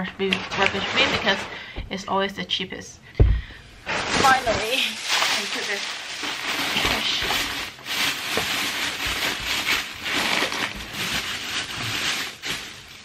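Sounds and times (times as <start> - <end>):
plastic bag crinkling: 3.8 - 13.0.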